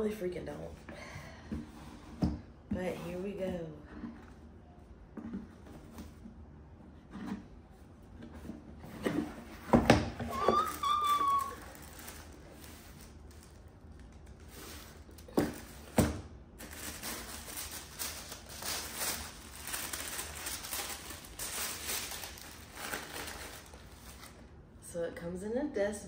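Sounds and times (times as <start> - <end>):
paper and cardboard rustling: 8.1 - 24.5.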